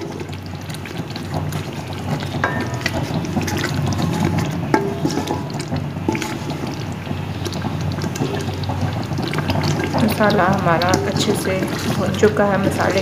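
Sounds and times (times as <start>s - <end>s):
spices sizzling in oil: 0.0s - 13.0s
spoon clinking against pot: 2.4s - 6.2s.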